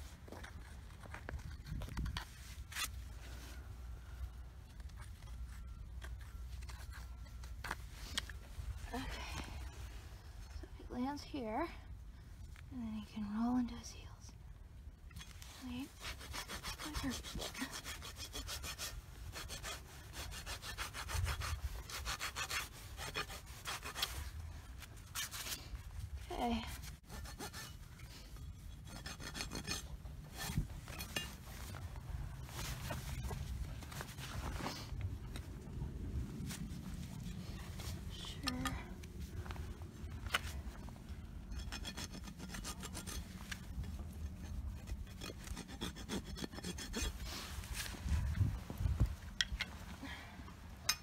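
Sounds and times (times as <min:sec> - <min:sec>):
hoof rasp rasping strokes: 0:15.2 - 0:25.9, 0:26.8 - 0:34.9, 0:40.2 - 0:49.7.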